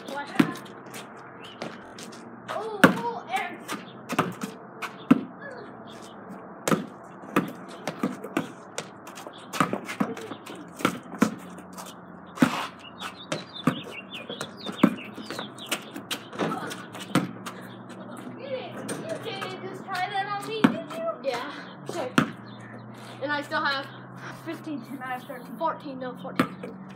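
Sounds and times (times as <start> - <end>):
basketball bouncing: 0.0 - 1.0, 2.7 - 5.3, 6.6 - 21.1, 21.9 - 22.5, 26.3 - 26.9
birds chirping faintly: 3.7 - 26.9.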